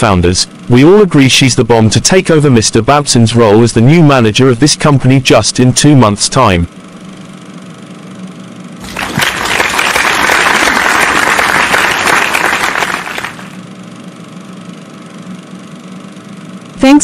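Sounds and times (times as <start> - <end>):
steady low hum: 0.0 - 17.0
group clapping in applause: 8.8 - 13.6.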